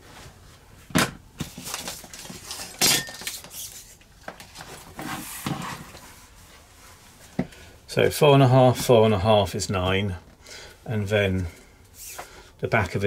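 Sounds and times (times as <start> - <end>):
metal tools clinking: 2.8 - 3.3.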